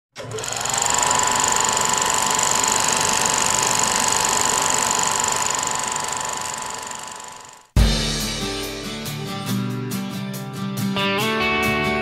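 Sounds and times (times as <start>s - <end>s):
mechanical whirring rattle: 0.2s - 7.7s.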